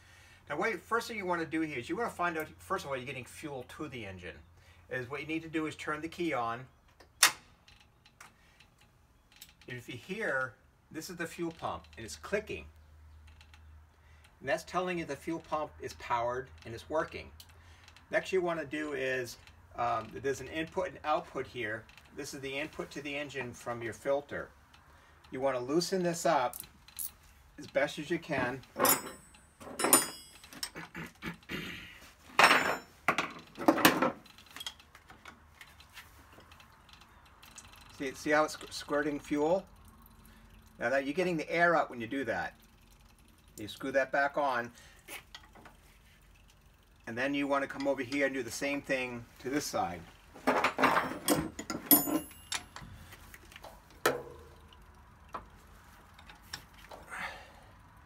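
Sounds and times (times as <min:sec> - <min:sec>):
metal tools clinking: 0:26.4 - 0:27.8, 0:28.4 - 0:30.9, 0:32.3 - 0:33.0, 0:34.0 - 0:35.4, 0:50.4 - 0:54.8.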